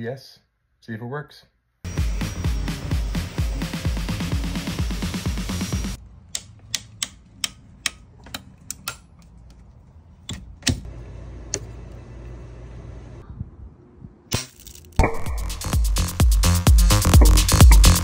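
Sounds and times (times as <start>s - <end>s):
bb gun action clicking: 6.3s - 9.6s.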